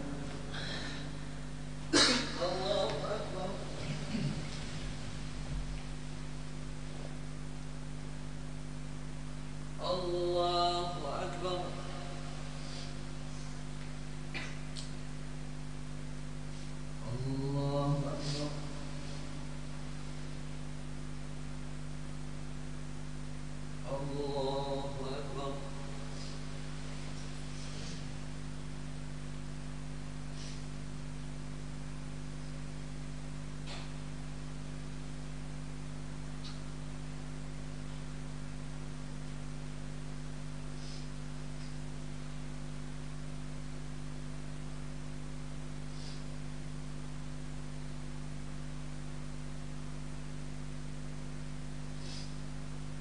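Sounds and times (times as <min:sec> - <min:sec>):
faint microphone hiss: 0:00.0 - 0:53.0
mains hum: 0:00.0 - 0:53.0
faint brief high hiss: 0:52.0 - 0:52.4.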